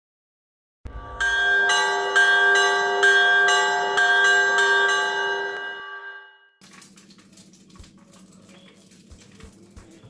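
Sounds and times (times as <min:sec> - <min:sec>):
ringing bell chimes: 0:01.0 - 0:06.5.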